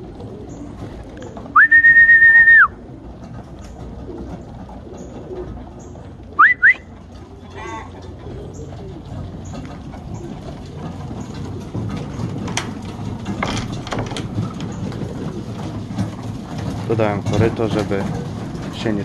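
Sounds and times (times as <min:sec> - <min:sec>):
pigeons cooing: 0:00.0 - 0:19.0
person whistling: 0:01.6 - 0:02.8, 0:06.4 - 0:06.8.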